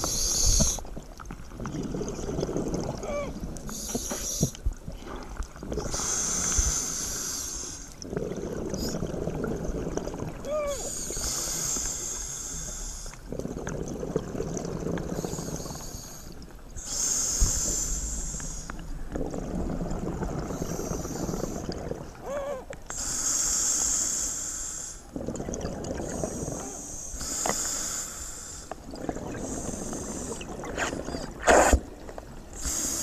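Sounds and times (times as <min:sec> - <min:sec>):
bubbles rumbling: 0:00.9 - 0:03.9, 0:04.6 - 0:06.2, 0:07.9 - 0:10.8, 0:13.2 - 0:15.8, 0:17.7 - 0:22.7, 0:25.1 - 0:26.8, 0:28.8 - 0:32.5
diver breathing through regulator: 0:05.8 - 0:09.2, 0:14.9 - 0:21.9.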